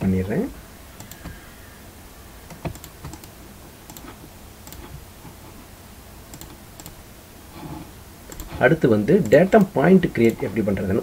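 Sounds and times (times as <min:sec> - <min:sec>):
mouse and keyboard clicks: 0:01.0 - 0:01.4, 0:02.5 - 0:05.0, 0:06.3 - 0:07.0.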